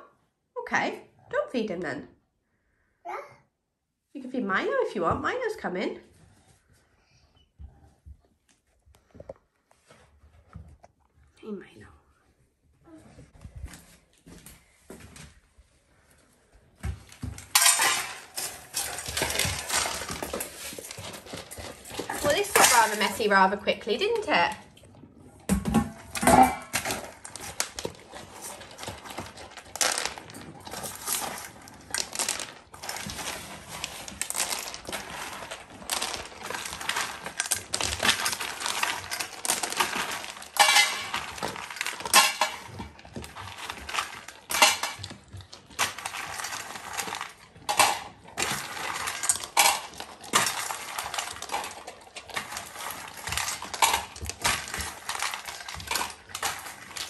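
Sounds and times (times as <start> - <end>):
kibble rattling in metal bowl: 17.1 - 24.6, 25.5 - 57.0
dog eating kibble: 17.5 - 25.5, 26.8 - 57.0.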